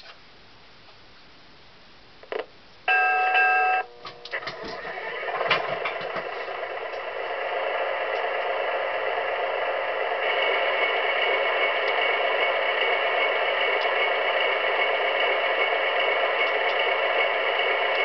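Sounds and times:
diesel engine running: 3.9s - 18.0s.

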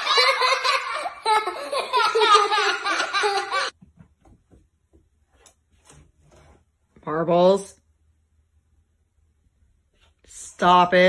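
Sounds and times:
girl laughing: 0.0s - 3.7s.

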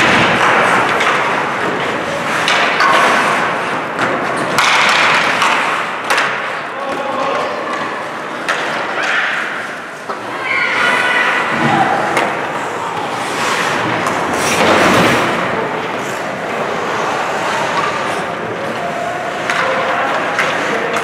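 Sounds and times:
hockey sticks and puck clacking: 0.0s - 21.0s
skates scraping on ice: 0.0s - 21.0s
faint voices: 6.4s - 21.0s.

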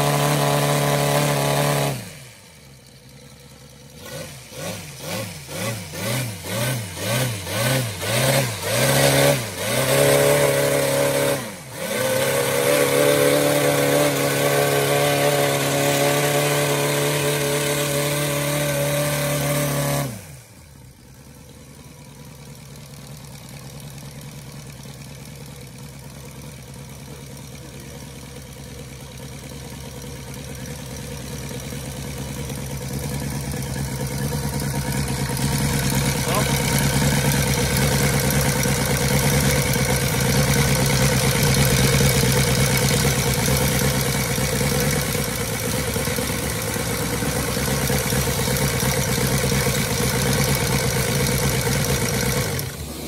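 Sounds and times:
radial engine revving: 0.0s - 2.9s, 3.8s - 20.6s, 32.5s - 53.0s.

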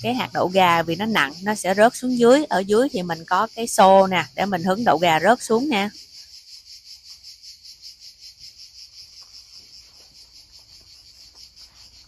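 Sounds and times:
faint insects chirping: 0.0s - 12.0s.

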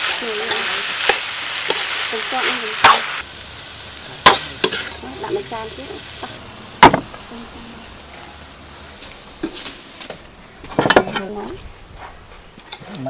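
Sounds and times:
dishes knocking on wooden table: 6.8s - 7.1s
dishes clinking: 10.6s - 11.5s.

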